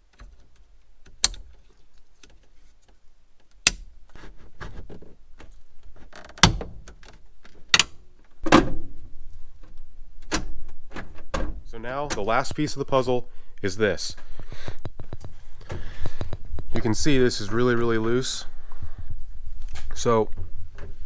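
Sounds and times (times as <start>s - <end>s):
plastic parts clicking into place: 4.8s - 8.4s.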